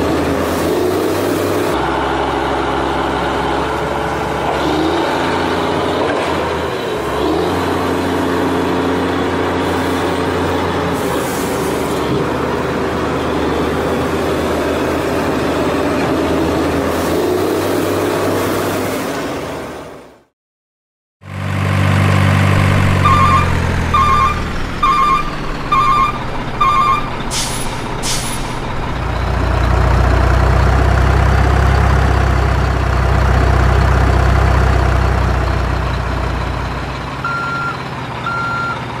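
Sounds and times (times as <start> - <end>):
diesel truck engine running: 0.0 - 20.2, 21.2 - 39.0
reversing alarm beeping: 23.0 - 27.6, 37.2 - 38.9
air brake hisses: 27.3 - 28.7.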